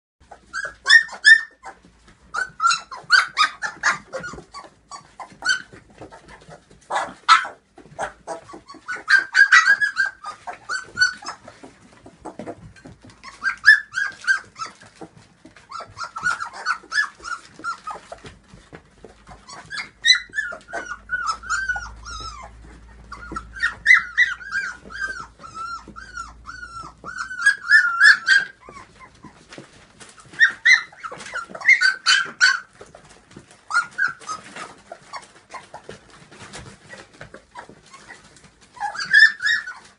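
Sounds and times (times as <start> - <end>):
puppies whining and yipping: 0.2 - 39.9.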